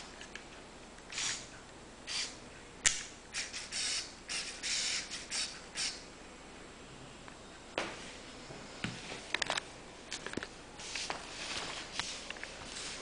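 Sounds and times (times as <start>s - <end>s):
sharp click: 2.8s - 3.6s.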